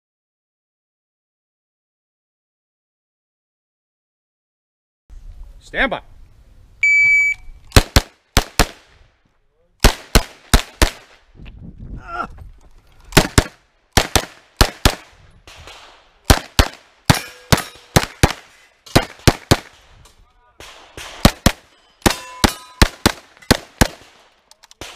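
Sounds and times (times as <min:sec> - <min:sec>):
shot timer beep: 0:06.8 - 0:07.5
carbine gunshots: 0:07.7 - 0:08.9, 0:09.8 - 0:11.2, 0:13.1 - 0:19.9, 0:20.6 - 0:24.9.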